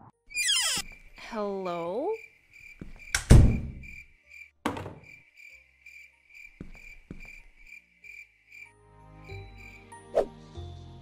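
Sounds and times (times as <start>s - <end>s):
cricket chirping: 0.3s - 9.9s
loud thud: 3.3s - 3.9s.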